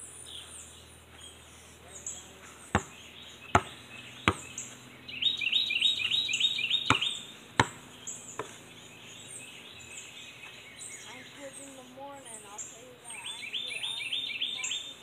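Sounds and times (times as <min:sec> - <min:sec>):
bird singing repeated notes: 0:00.0 - 0:15.0
birds chirping: 0:00.0 - 0:15.0
basketball bouncing: 0:02.7 - 0:04.6, 0:06.9 - 0:08.6.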